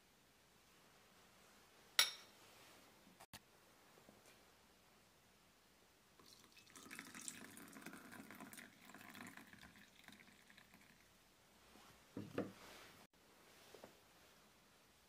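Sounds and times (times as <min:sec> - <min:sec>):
milk pouring into glass: 0:06.2 - 0:11.2.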